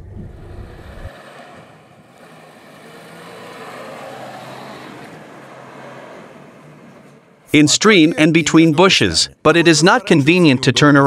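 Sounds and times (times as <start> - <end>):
low in-cab rumble: 0.0 - 1.1
car engine and tyres passing: 0.0 - 8.7.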